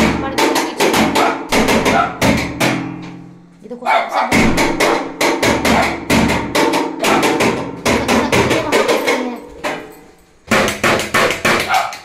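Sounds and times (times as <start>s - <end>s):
stick knocking hard: 0.0s - 3.2s, 4.3s - 12.0s.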